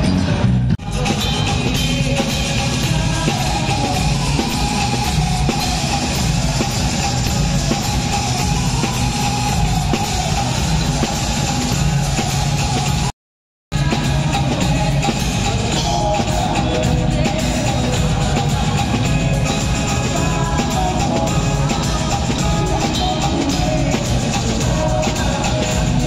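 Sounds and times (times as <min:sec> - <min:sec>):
rock music with guitar and drums: 0:00.0 - 0:13.1, 0:13.7 - 0:26.0.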